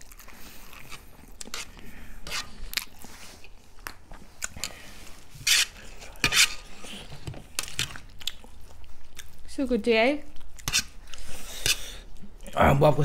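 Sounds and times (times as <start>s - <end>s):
person chewing and biting food: 0.0s - 9.4s.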